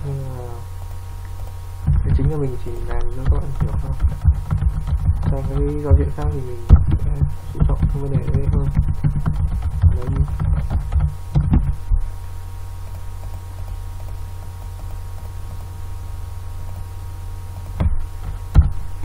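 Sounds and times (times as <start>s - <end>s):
low electrical hum: 0.0s - 19.0s
keyboard keys clicking: 7.6s - 11.8s.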